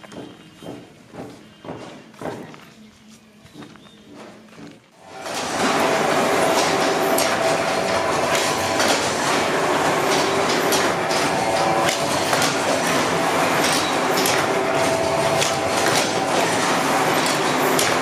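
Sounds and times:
paper machine clattering: 0:05.0 - 0:18.0.

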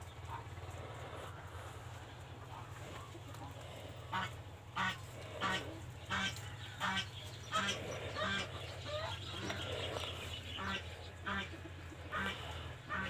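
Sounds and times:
steady low hum: 0:00.0 - 0:13.0
bird honking call: 0:04.1 - 0:13.0.

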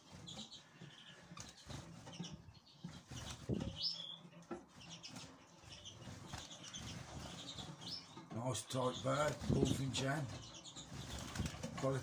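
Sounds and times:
birds hopping and knocking: 0:00.0 - 0:12.0
wing flutters: 0:09.2 - 0:12.0.

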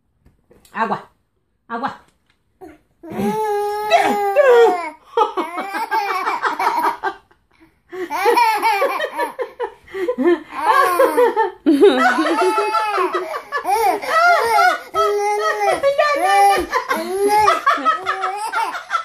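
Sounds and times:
toddler belly laughing: 0:02.6 - 0:07.3, 0:08.0 - 0:09.8, 0:10.4 - 0:19.0.

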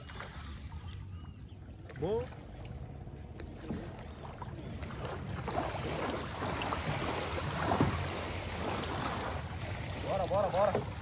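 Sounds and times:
boat wake lapping on shore: 0:00.0 - 0:11.0
water lapping around a canoe: 0:00.0 - 0:11.0.

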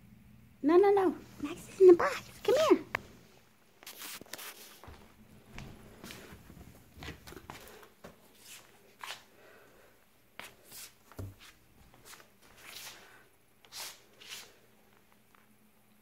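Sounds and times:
rustling and crinkling: 0:02.0 - 0:09.3, 0:10.4 - 0:15.5.

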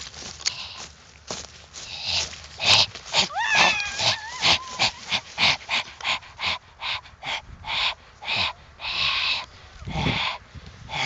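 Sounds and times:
running through undergrowth swishing: 0:00.0 - 0:06.3.

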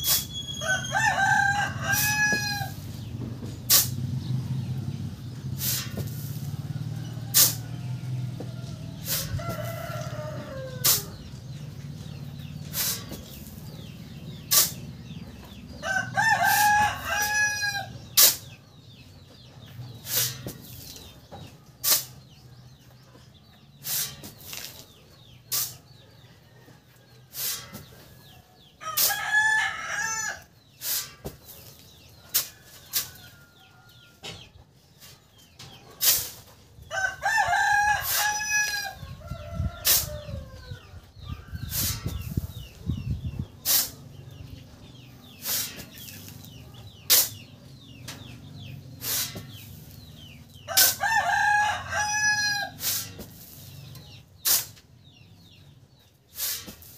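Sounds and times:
shovel scraping into sand: 0:00.0 - 0:02.2, 0:03.7 - 0:04.1, 0:05.6 - 0:06.6, 0:07.3 - 0:07.8, 0:09.0 - 0:11.2, 0:12.6 - 0:14.9, 0:18.2 - 0:18.5, 0:20.0 - 0:21.2, 0:21.8 - 0:22.3, 0:23.8 - 0:24.9, 0:25.5 - 0:25.9, 0:27.3 - 0:28.4, 0:30.8 - 0:33.4, 0:36.0 - 0:36.5, 0:39.8 - 0:40.3, 0:41.6 - 0:42.8, 0:43.6 - 0:44.0, 0:45.2 - 0:47.4, 0:49.0 - 0:51.0, 0:52.7 - 0:54.9, 0:56.3 - 0:56.9
rooster crowing: 0:00.0 - 0:02.8, 0:06.7 - 0:11.1, 0:15.8 - 0:17.9, 0:36.9 - 0:40.8, 0:50.7 - 0:52.8.

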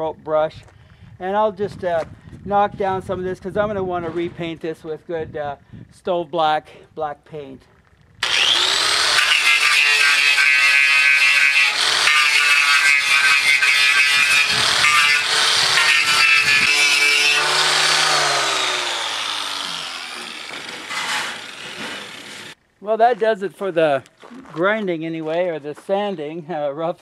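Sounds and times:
angle grinder motor whine: 0:08.2 - 0:22.6
wire brush scraping metal: 0:09.0 - 0:22.6.

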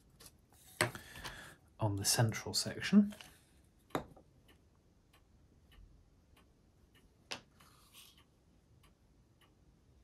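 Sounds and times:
faint regular ticking: 0:02.4 - 0:10.0.

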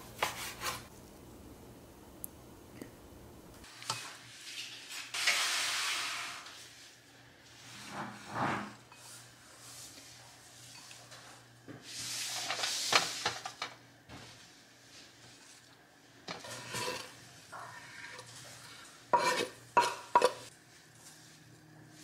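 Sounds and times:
utensil scraping and stirring cookware: 0:03.6 - 0:13.7, 0:16.3 - 0:20.5.

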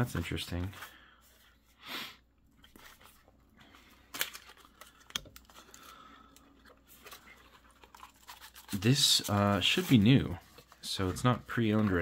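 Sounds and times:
plastic bag crinkling: 0:06.9 - 0:12.0.

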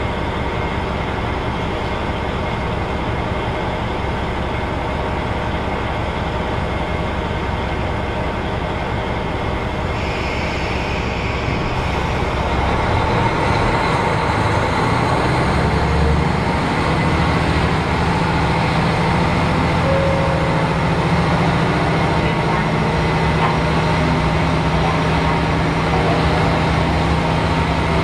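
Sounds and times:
diesel train engine: 0:00.0 - 0:28.0.

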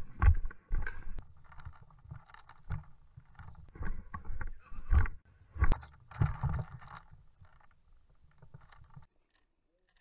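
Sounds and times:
clothing and gear rustling: 0:01.2 - 0:04.0, 0:05.6 - 0:09.1.

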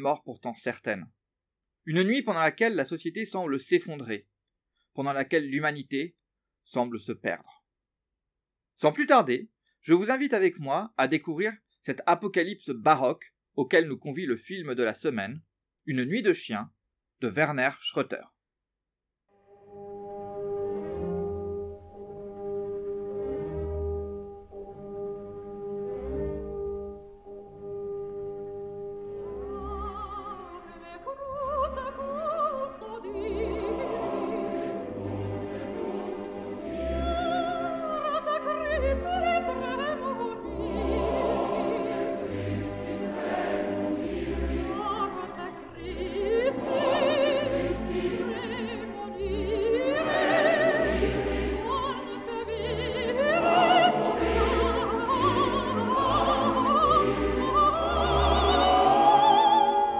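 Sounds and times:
orchestra playing: 0:19.4 - 0:30.8, 0:33.0 - 0:59.9
opera singing with vibrato: 0:29.3 - 0:59.9.

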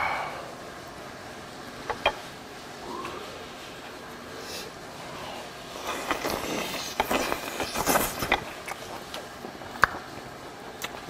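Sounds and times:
man slurping and chewing: 0:05.4 - 0:09.3.

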